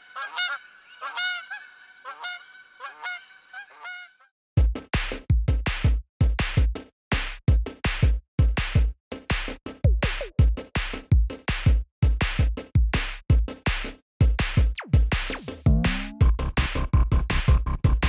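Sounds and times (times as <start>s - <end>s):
electronic music with drum machine beat: 4.6s - 18.0s
rising synth sweep: 15.7s - 16.2s.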